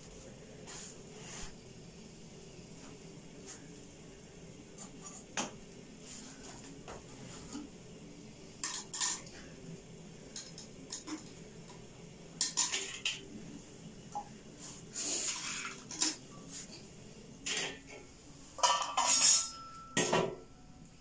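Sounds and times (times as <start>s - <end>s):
utensils and dishes clinking: 8.6s - 9.5s, 10.3s - 11.4s, 12.4s - 13.3s, 15.2s - 16.3s, 17.4s - 20.5s.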